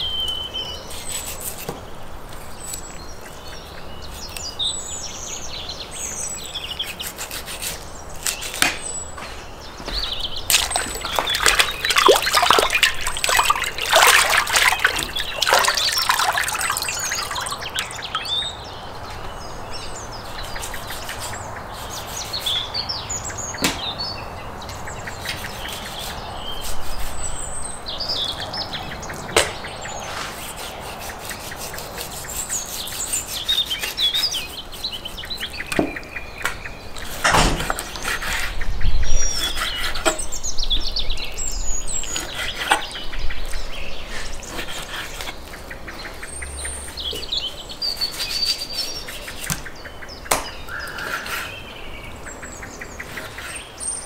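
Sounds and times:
small birds chirping: 0:00.0 - 0:54.0
water splashing and trickling: 0:10.4 - 0:18.7
sharp knocks: 0:23.6 - 0:23.9, 0:37.2 - 0:37.8, 0:50.3 - 0:50.6.

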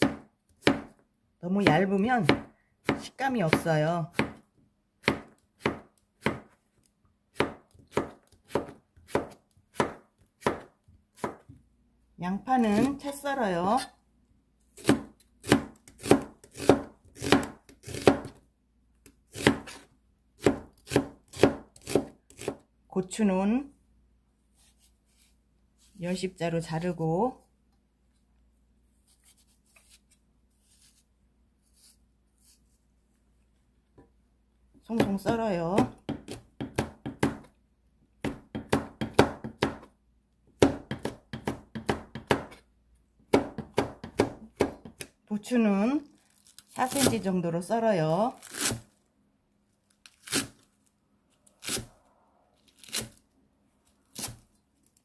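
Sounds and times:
knife slicing onion: 0:00.0 - 0:01.0, 0:01.6 - 0:04.4, 0:05.0 - 0:06.6, 0:07.3 - 0:11.5, 0:14.7 - 0:18.4, 0:19.0 - 0:22.6, 0:34.9 - 0:37.5, 0:38.2 - 0:39.9, 0:40.6 - 0:42.7, 0:43.3 - 0:45.1, 0:52.8 - 0:53.2, 0:54.1 - 0:54.5.

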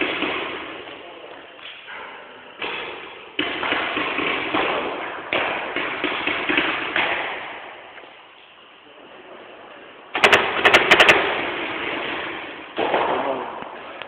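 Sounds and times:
paintball markers firing: 0:02.6 - 0:08.1, 0:10.2 - 0:13.2.

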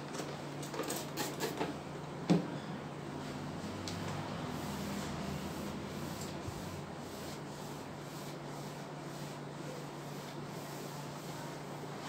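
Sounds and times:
cloth rubbing on whiteboard: 0:04.5 - 0:12.0.

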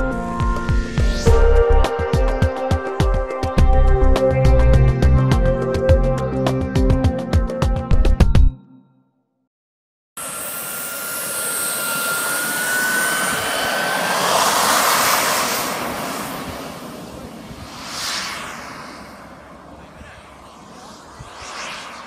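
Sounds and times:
model jet engine whine: 0:10.2 - 0:22.0.

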